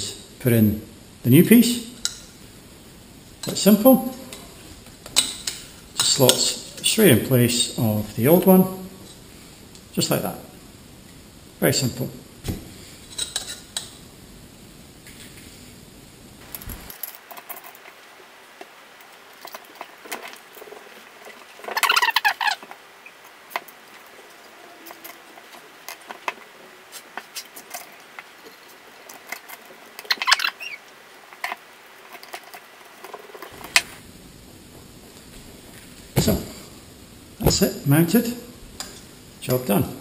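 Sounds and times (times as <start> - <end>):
small parts clicking and rattling: 16.4 - 18.0, 27.1 - 33.8.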